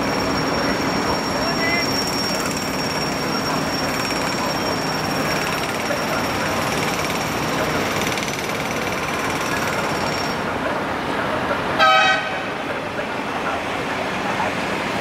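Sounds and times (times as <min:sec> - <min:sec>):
passing traffic: 0:00.0 - 0:15.0
vehicle horn toot: 0:11.8 - 0:12.4.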